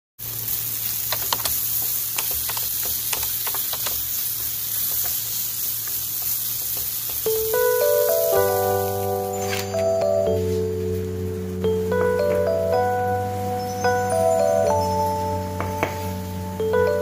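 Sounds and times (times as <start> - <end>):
chicken sizzling in frying pan: 0.2 - 17.0
wooden spatula clicks: 1.0 - 7.3
light mallet instrument music: 7.2 - 17.0.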